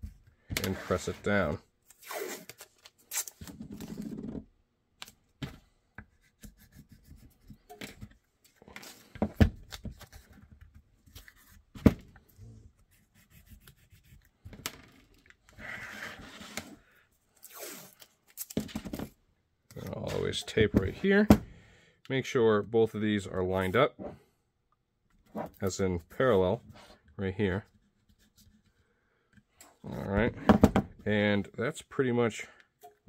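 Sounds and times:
hands rubbing tape: 12.8 - 14.5.

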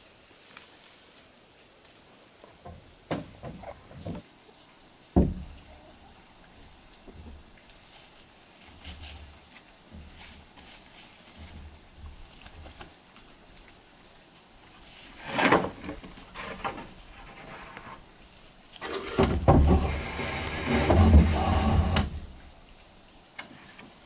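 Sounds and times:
plank scraping and knocking: 5.2 - 5.5, 15.2 - 18.0, 18.8 - 22.3
wood-on-wood knock: 5.2 - 5.5.

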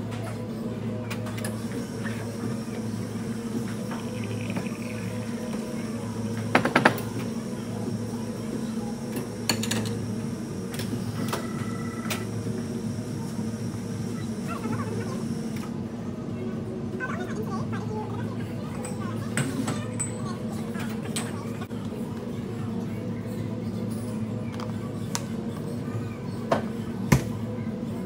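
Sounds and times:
kitchen equipment hum: 0.0 - 16.2.

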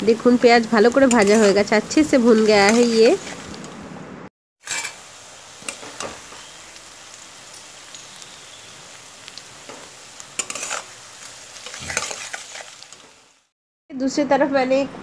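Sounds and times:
onions sizzling in oil: 0.0 - 3.8, 4.6 - 13.6
metal spatula scraping pan: 1.0 - 1.6, 4.6 - 5.0, 10.4 - 10.9, 11.6 - 12.7.

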